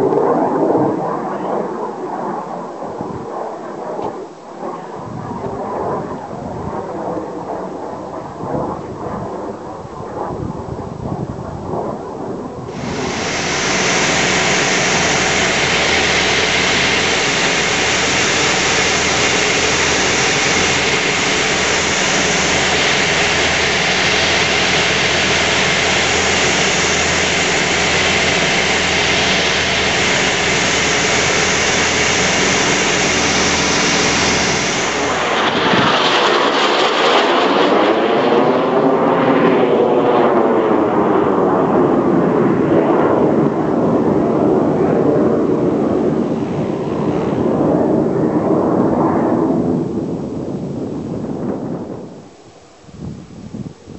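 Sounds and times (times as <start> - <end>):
jet flying past at a distance: 0.0 - 53.1
aircraft engine drone: 0.0 - 53.9
rushing air: 12.6 - 38.6, 43.4 - 53.9.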